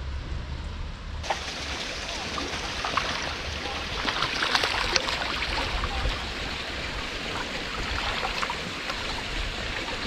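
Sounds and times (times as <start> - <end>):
running water rushing: 1.2 - 10.0.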